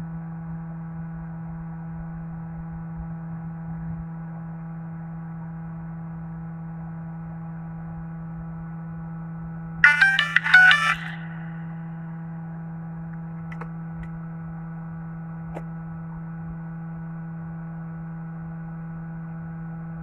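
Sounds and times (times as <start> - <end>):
phone startup jingle: 9.8 - 11.8.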